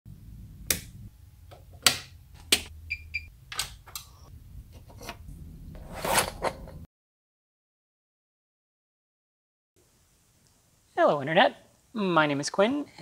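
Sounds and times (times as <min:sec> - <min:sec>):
rocker power switch clicking: 0:00.7 - 0:00.9
sharp clicks and knocks: 0:01.5 - 0:02.7.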